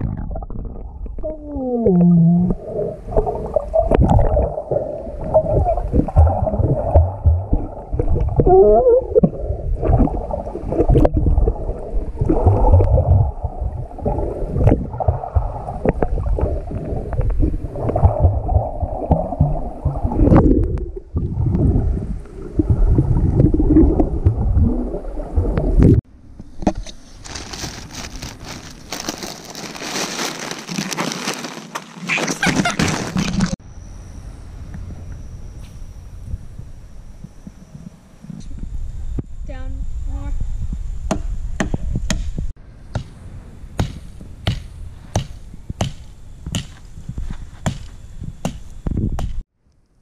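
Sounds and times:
muffled underwater water sloshing: 1.9 - 26.0
hand rustling plastic snack bag: 27.1 - 33.6.

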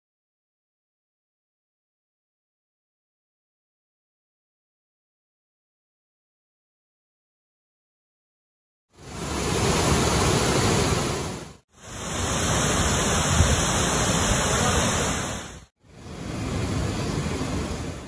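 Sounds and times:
waterfall rushing: 9.0 - 18.0.

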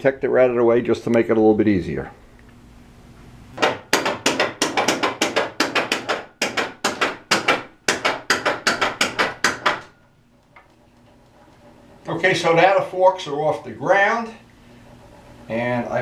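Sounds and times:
rapid sharp percussive knocks: 3.6 - 9.9.

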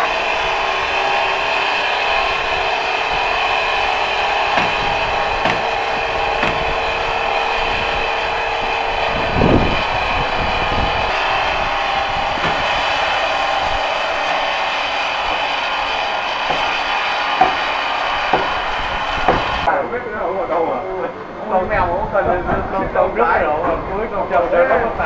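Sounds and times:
saw droning through log: 0.0 - 19.7
knocks and thumps: 4.5 - 6.8, 12.4 - 12.8, 16.5 - 16.8, 18.3 - 18.6, 19.2 - 19.6.

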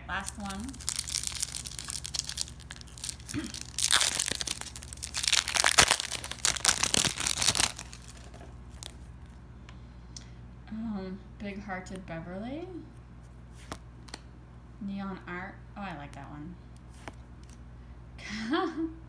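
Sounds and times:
plastic wrapper tearing and crinkling: 0.1 - 9.4.

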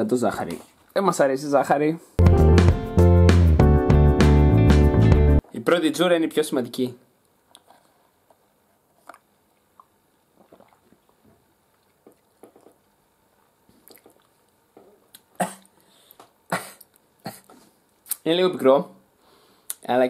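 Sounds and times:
sipping through a straw: 8.9 - 11.4.

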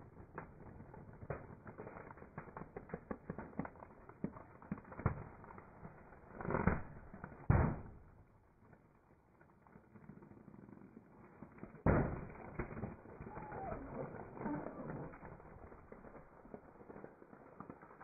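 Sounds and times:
balloons creaking and squeaking: 13.0 - 16.1.

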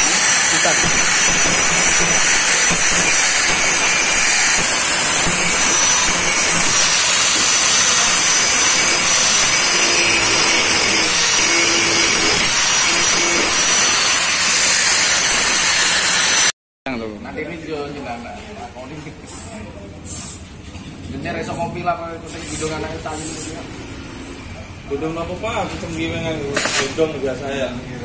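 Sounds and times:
angle grinder grinding steel: 0.0 - 16.5.

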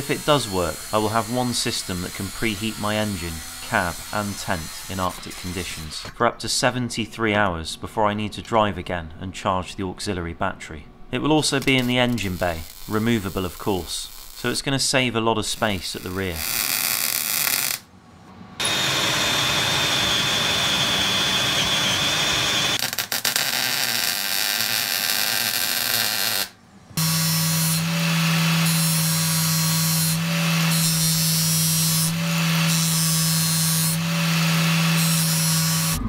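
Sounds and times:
angle grinder grinding metal: 0.0 - 6.1, 11.5 - 14.6, 18.6 - 36.0
arc welding crackling and hissing: 11.5 - 14.7, 15.4 - 17.9, 22.8 - 27.8.

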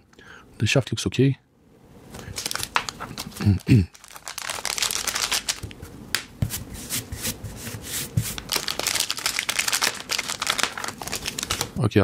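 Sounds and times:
plastic bag crinkling: 2.2 - 5.8, 8.3 - 11.8.

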